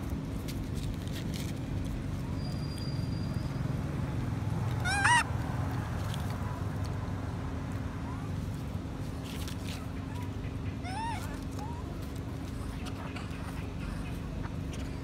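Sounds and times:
baby monkey squealing: 0:04.7 - 0:05.3, 0:10.8 - 0:11.9.

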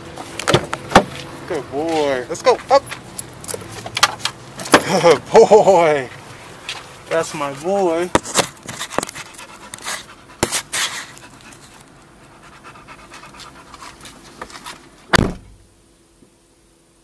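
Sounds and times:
knocks and rustling in seats: 0:00.2 - 0:01.3, 0:14.2 - 0:15.6
dog panting: 0:07.2 - 0:08.1, 0:08.7 - 0:14.3
loud thump: 0:15.1 - 0:15.6.

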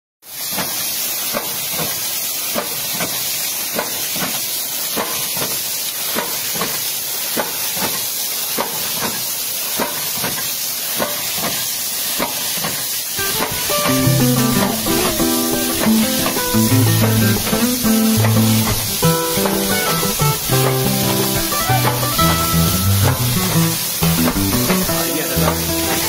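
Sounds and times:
water spraying hiss: 0:00.2 - 0:26.0
pump valves clicking shut: 0:06.2 - 0:11.6, 0:12.2 - 0:26.0
guitar music: 0:13.2 - 0:26.0.

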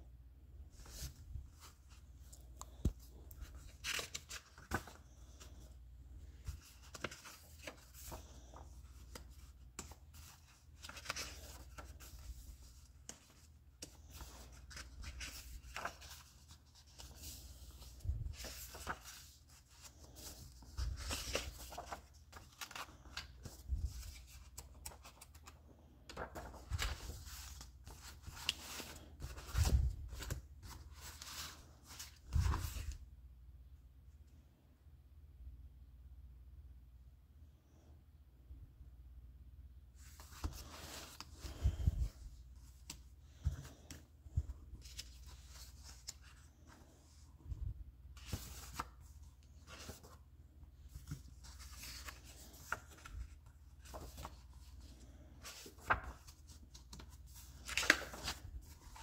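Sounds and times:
soft thumps of pages: 0:00.7 - 0:05.4, 0:40.0 - 0:50.2
paper pages rustling: 0:00.7 - 0:33.0, 0:40.0 - 0:59.0.

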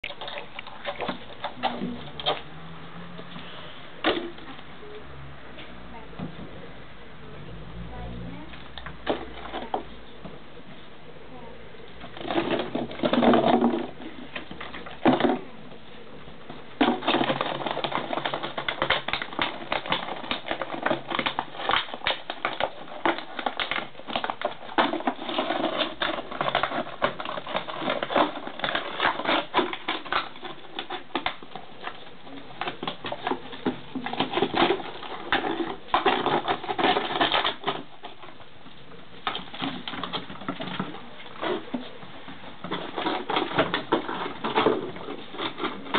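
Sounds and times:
puppy claws clicking on stone: 0:16.8 - 0:38.4.

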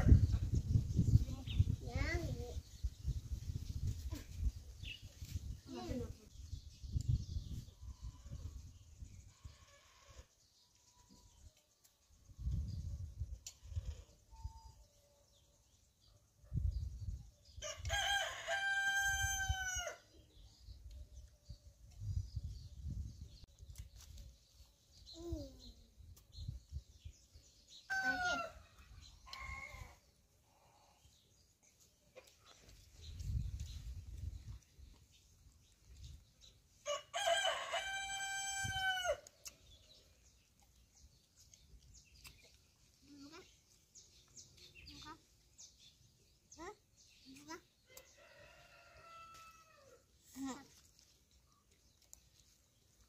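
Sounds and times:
rooster crowing: 0:17.7 - 0:20.0, 0:36.8 - 0:39.2, 0:48.1 - 0:50.0.

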